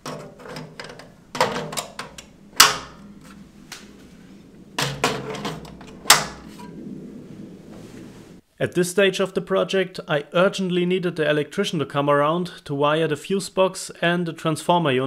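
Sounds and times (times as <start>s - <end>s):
metal clacks and knocks: 0.0s - 4.0s, 4.6s - 6.8s.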